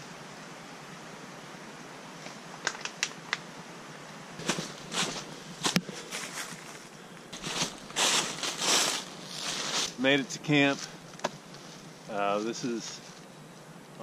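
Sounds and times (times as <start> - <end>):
footsteps crunching dry leaves: 4.4 - 11.0, 11.6 - 13.2.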